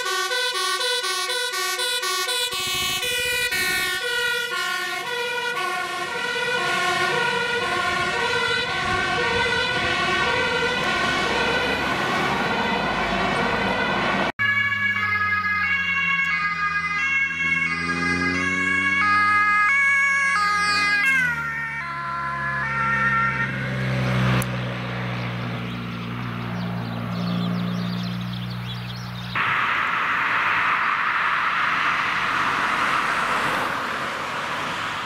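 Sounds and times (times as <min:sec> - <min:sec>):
fire engine two-tone siren: 0:00.0 - 0:25.1, 0:29.4 - 0:35.0
police motorcycle siren: 0:00.0 - 0:28.2
truck engine noise: 0:00.0 - 0:35.0
motorcycle engine revving: 0:14.4 - 0:29.3.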